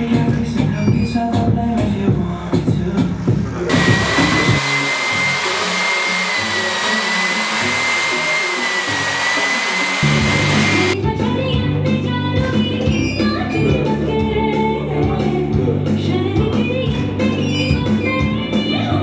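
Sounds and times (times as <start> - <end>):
background music with bass line: 0.0 - 4.6, 10.0 - 19.0
electric blower rushing air: 3.7 - 11.0.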